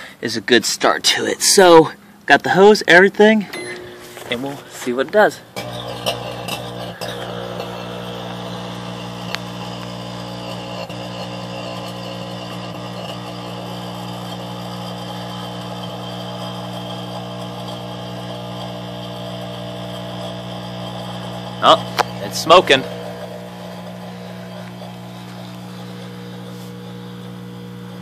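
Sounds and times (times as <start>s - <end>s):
microwave oven humming: 3.4s - 28.0s
microwave clicks: 5.6s - 15.0s.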